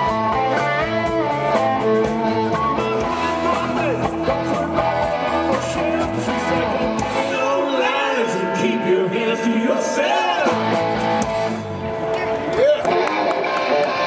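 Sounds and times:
bass guitar: 0.0 - 14.0
drums: 0.0 - 14.0
electric guitar: 0.0 - 14.0
man singing: 2.5 - 10.8.

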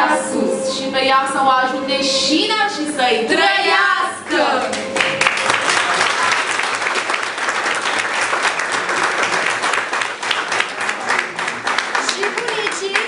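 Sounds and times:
crowd applauding: 4.6 - 13.0.

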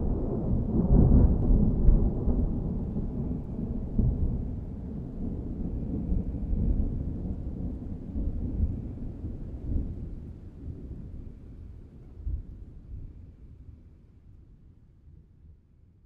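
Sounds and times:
thunder rumbling: 0.0 - 11.2.

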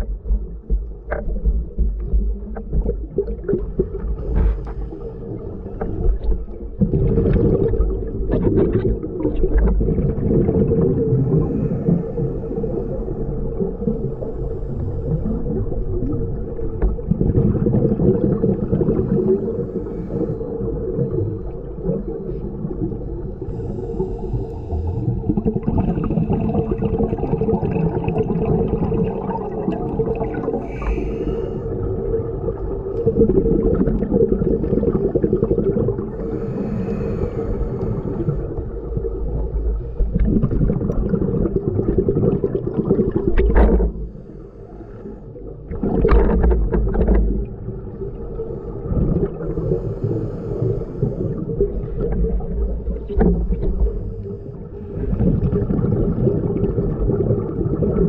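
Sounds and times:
muffled underwater noise: 0.0 - 40.5
scuba diver exhaling bubbles: 1.3 - 44.3, 45.7 - 58.0.

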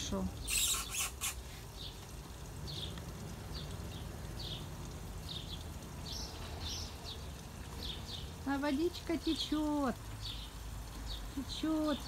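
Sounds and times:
small bird chirping: 0.0 - 2.0.

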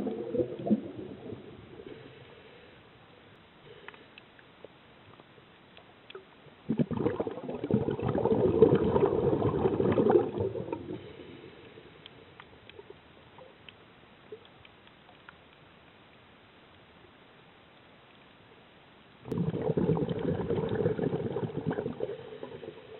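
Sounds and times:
gurgling rush of bubbles: 0.0 - 1.7, 6.7 - 11.1, 19.2 - 22.9
faint clicks: 3.3 - 6.4, 11.0 - 19.4.

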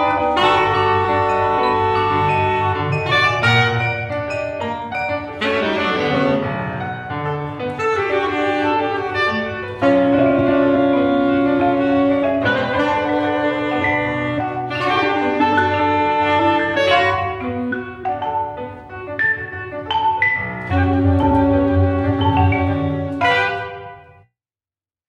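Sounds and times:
ringing marimba and vibraphone: 0.0 - 6.1, 12.6 - 23.6
piano chords: 0.0 - 24.3
saxophones: 0.0 - 24.3.

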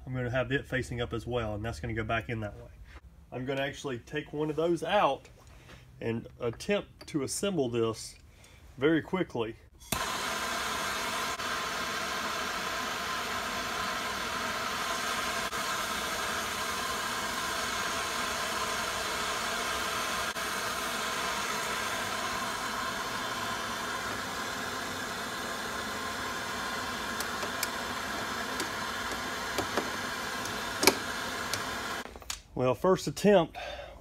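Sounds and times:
gas torch hissing: 9.8 - 32.1.

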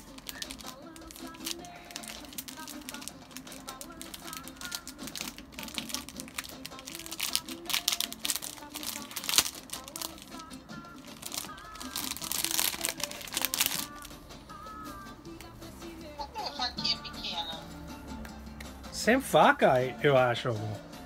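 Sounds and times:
plastic packaging crinkling: 0.0 - 14.1
quiet music: 0.0 - 21.0.

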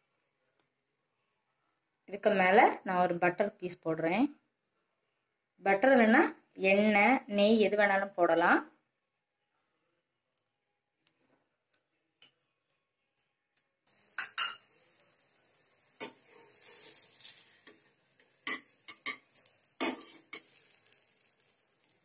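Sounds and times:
butter sizzling: 13.8 - 22.0
metal spatula tapping and scraping pan: 14.2 - 14.7, 16.0 - 20.9.

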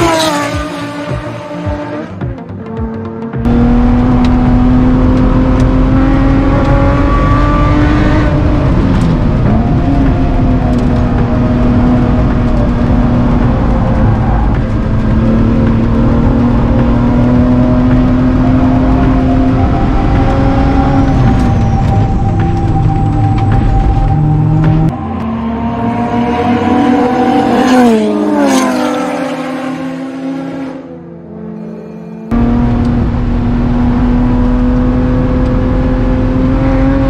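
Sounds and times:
car engine revving from inside: 3.4 - 30.8.

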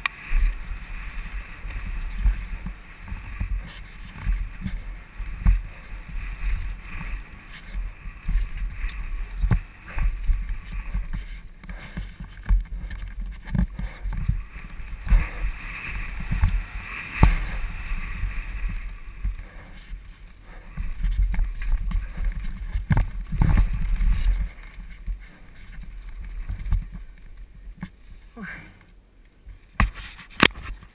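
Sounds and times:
bike rattling: 0.0 - 30.9
wind rumbling on microphone: 0.0 - 30.9
sharp knocks over bumps: 7.7 - 19.6, 29.8 - 30.9.

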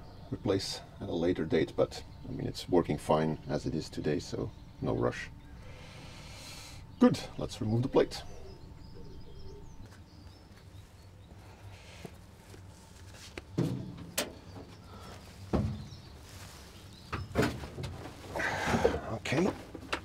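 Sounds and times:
metal knocks and clunks: 13.5 - 14.8, 15.5 - 16.0, 17.1 - 20.0.

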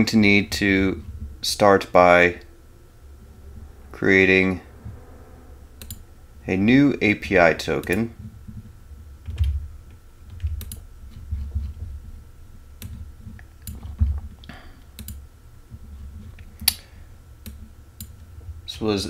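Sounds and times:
faint steady high whine: 0.0 - 19.0
low rumble: 0.2 - 14.5
computer mouse clicks: 5.8 - 6.0, 10.3 - 11.2, 12.8 - 15.2.

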